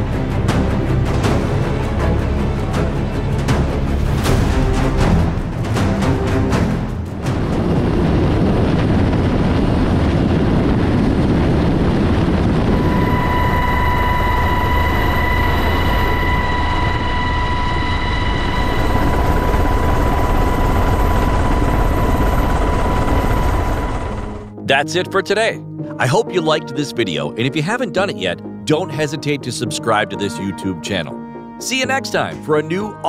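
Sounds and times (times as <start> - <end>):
helicopter rotor and engine din: 0.0 - 24.6
steady high whine: 0.0 - 24.6.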